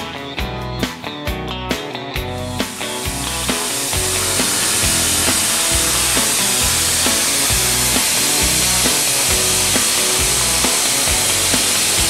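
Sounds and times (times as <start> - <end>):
background music with steady beat: 0.0 - 12.0
steady high hiss: 2.5 - 12.0.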